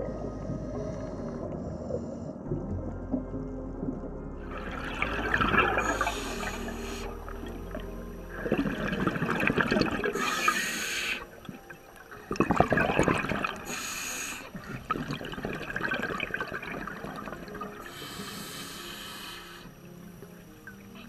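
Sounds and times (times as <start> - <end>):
exhaled bubbles gurgling: 0.0 - 18.7
regulator inhale hiss: 5.8 - 7.2, 10.2 - 11.3, 13.6 - 14.8, 17.8 - 19.8.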